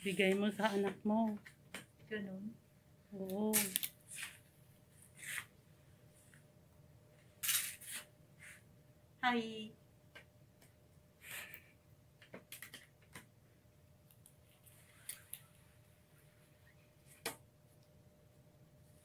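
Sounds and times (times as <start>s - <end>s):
low steady hum: 8.1s - 19.0s.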